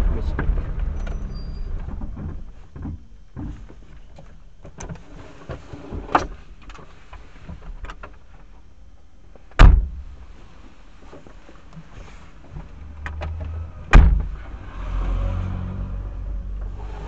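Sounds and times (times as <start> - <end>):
low vehicle rumble: 0.0 - 4.0, 12.0 - 17.0
knocks and rattles inside vehicle: 0.0 - 5.0, 9.4 - 10.4, 12.4 - 17.0
heavy thump: 9.6 - 10.2, 13.9 - 14.5.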